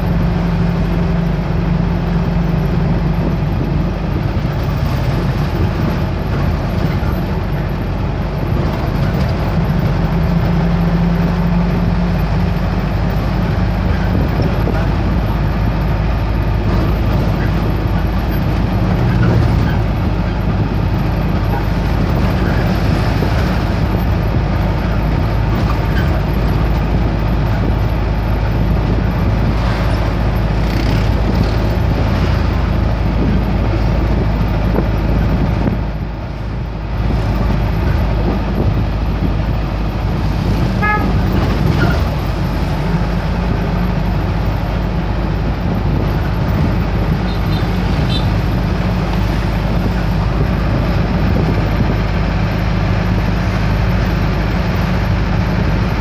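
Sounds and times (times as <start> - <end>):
engine hum and road noise: 0.0 - 56.0
short horn toot: 40.8 - 41.2.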